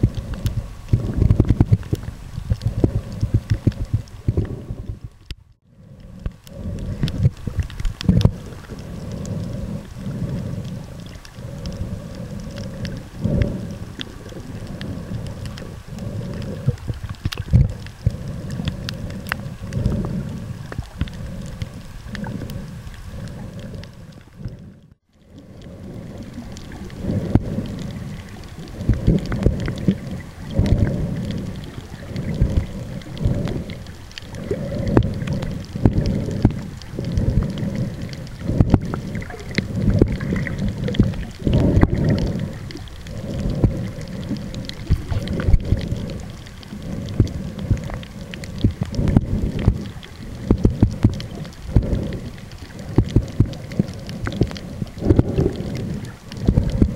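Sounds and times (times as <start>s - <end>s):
crackles and clicks: 0.0s - 56.9s
underwater water surges: 0.0s - 56.9s.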